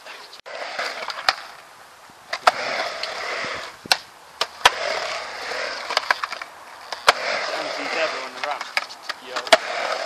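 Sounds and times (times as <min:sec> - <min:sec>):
skateboard wheels rolling on concrete: 0:00.0 - 0:10.0
skateboard clacking on ramp: 0:08.4 - 0:10.0.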